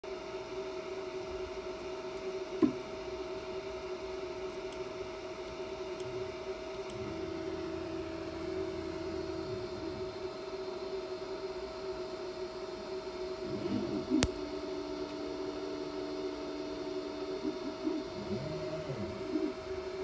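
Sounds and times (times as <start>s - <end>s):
fans humming: 0.1s - 20.0s.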